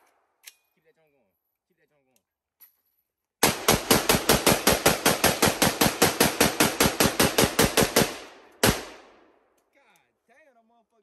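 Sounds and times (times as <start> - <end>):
pistol rapid gunfire: 3.4 - 9.3.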